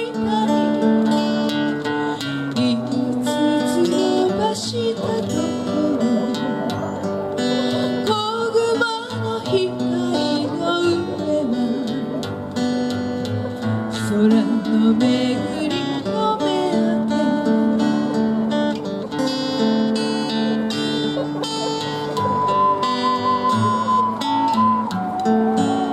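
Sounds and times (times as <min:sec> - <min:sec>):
acoustic guitar strumming: 0:00.0 - 0:25.9
woman singing slowly: 0:02.6 - 0:06.7, 0:08.0 - 0:12.2, 0:14.0 - 0:18.1.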